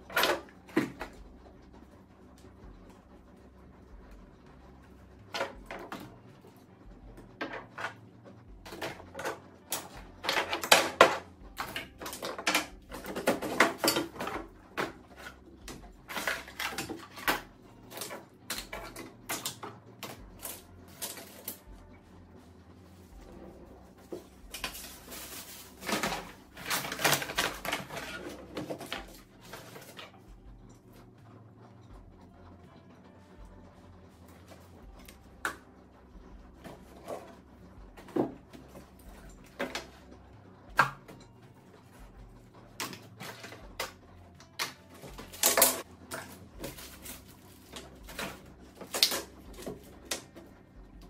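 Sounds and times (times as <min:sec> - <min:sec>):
plastic bottles clacking: 0:08.6 - 0:21.6, 0:24.0 - 0:30.1, 0:44.6 - 0:50.4.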